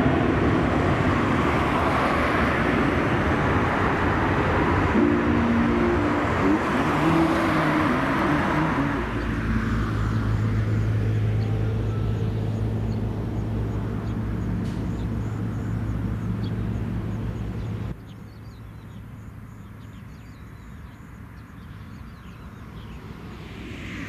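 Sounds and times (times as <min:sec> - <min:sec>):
rush of noise: 0:00.0 - 0:10.6, 0:22.5 - 0:24.0
low engine drone: 0:00.0 - 0:18.0
birds chirping: 0:05.0 - 0:23.5.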